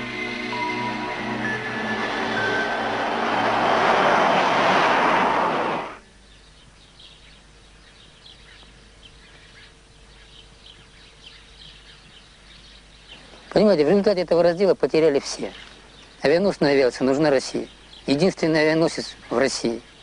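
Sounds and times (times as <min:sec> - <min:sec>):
jet fighters flying past: 0:01.8 - 0:06.0
small birds chirping: 0:06.0 - 0:20.0.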